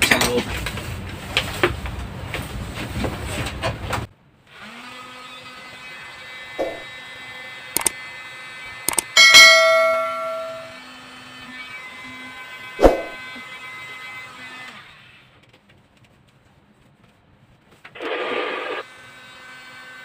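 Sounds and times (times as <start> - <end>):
loud ringing metallic clang: 9.2 - 10.8.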